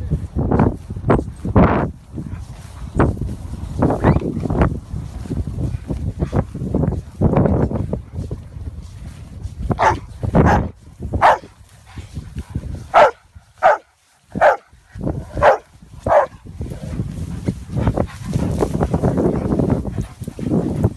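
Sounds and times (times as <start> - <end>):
steady rustling: 0.6 - 20.9
dog barking: 9.8 - 11.5, 12.9 - 14.7, 15.3 - 16.4.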